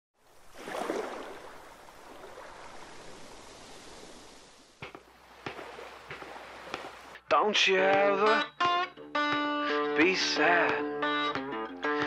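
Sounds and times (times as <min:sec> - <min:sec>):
rushing sea water: 0:00.2 - 0:07.2.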